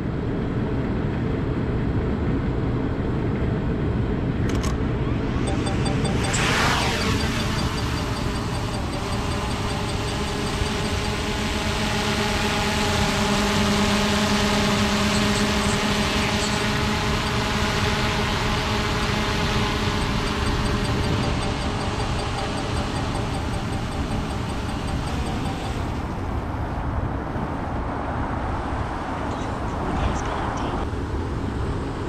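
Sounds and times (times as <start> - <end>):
drone propellers buzzing: 4.5 - 27.6.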